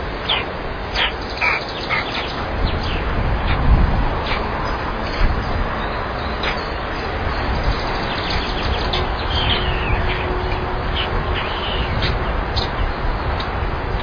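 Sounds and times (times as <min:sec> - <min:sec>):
steady rushing noise: 0:00.0 - 0:14.0
high bird chirps: 0:00.2 - 0:03.0.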